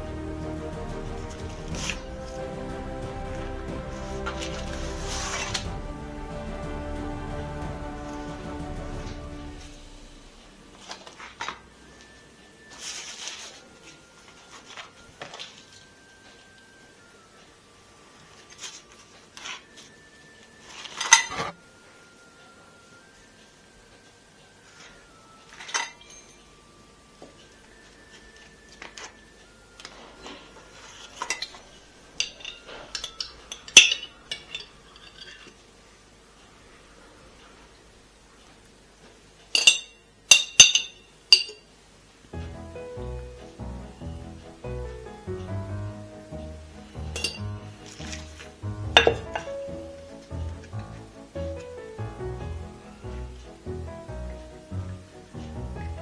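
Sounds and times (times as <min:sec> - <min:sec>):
scraping rustle: 0:03.9 - 0:05.7
utensils and dishes clinking: 0:20.6 - 0:21.6, 0:24.7 - 0:26.6, 0:29.8 - 0:35.6, 0:39.5 - 0:41.6, 0:47.0 - 0:49.6.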